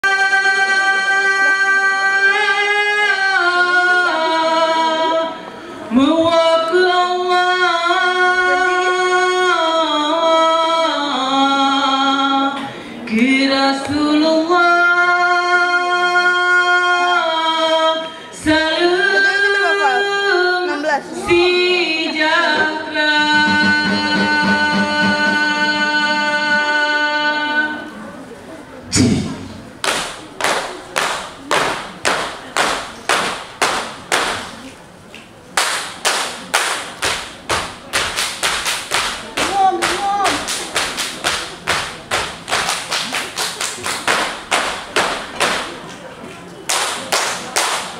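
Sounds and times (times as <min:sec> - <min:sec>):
dancers clapping and body slapping: 0:29.8 - 0:34.6, 0:35.2 - 0:45.8, 0:46.7 - 0:47.9.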